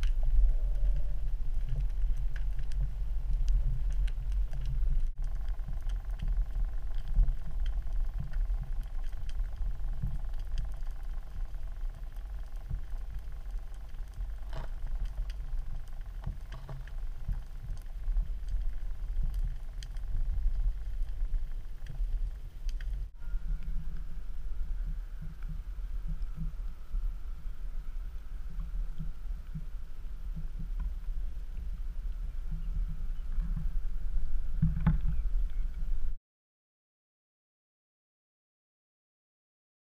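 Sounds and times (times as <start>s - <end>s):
faint clicks: 0.0s - 24.1s
underwater sea water rumble: 0.0s - 36.2s.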